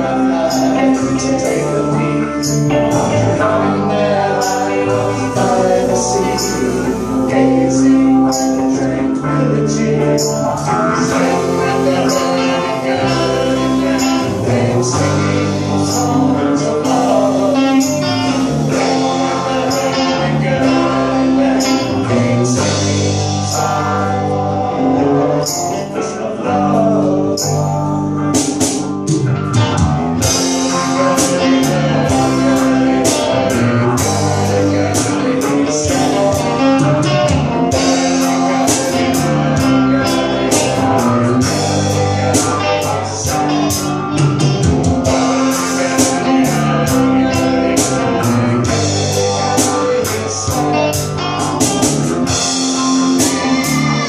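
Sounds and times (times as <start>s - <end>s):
live rock band playing: 0.0s - 54.0s
male lead vocal: 0.0s - 54.0s
drum and cymbal hits: 28.4s - 54.0s.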